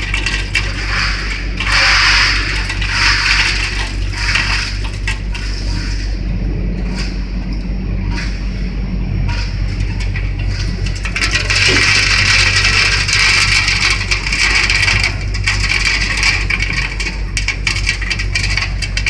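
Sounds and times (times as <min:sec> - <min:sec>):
clicks and rattles of moving parts: 0:00.0 - 0:05.4, 0:09.8 - 0:19.0
frying machine motor hum: 0:00.0 - 0:19.0.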